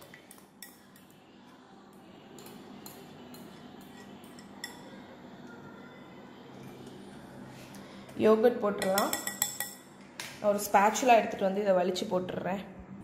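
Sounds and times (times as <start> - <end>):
metal spoon clinking against bowl: 0.0 - 1.2, 2.3 - 5.0, 8.8 - 9.9.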